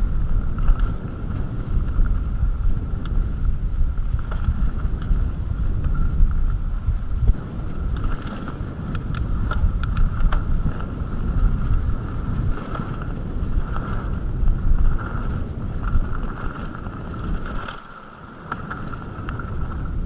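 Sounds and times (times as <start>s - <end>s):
bike tyres rolling on dirt: 0.0s - 20.0s
wind buffeting microphone: 0.0s - 20.0s
sharp clicks and rattles: 7.2s - 11.0s.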